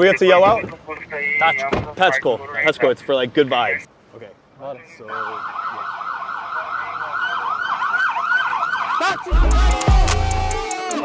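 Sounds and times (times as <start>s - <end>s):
police siren yelping: 5.1s - 10.9s.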